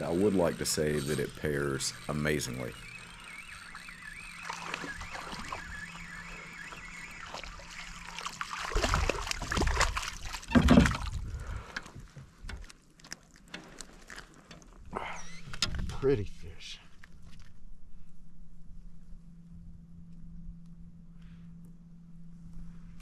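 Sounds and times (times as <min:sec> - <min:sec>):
fish splashing in water: 0:04.4 - 0:11.2.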